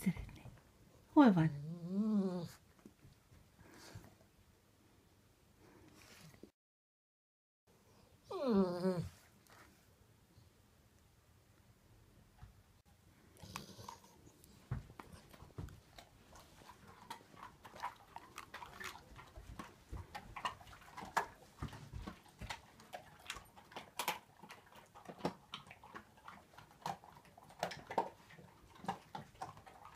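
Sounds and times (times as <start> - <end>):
dogs crunching chew treats: 13.3 - 29.9.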